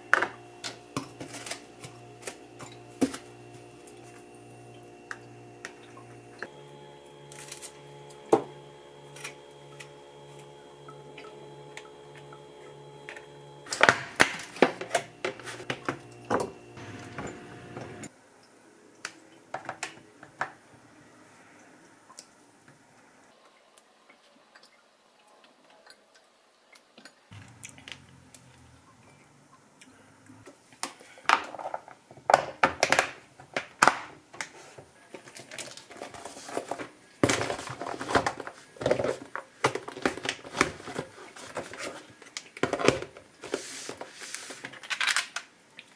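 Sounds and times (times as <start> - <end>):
plastic containers clicking and knocking: 30.8 - 34.5, 35.2 - 43.3.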